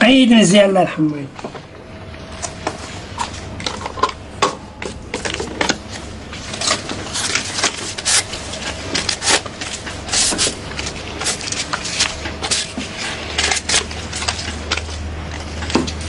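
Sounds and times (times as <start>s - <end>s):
paper banknotes rustling: 4.8s - 16.0s.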